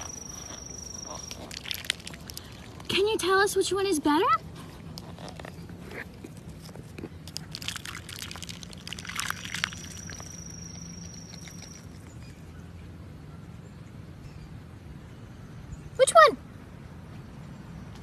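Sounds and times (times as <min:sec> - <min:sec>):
thin high whistle: 0:00.0 - 0:01.6, 0:09.7 - 0:12.1
duck dabbling in water: 0:00.0 - 0:03.0, 0:07.3 - 0:12.0.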